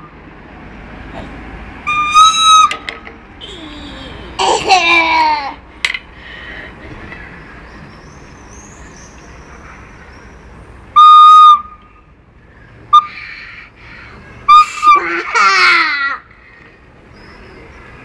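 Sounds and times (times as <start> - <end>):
recorder notes: 1.9 - 3.1.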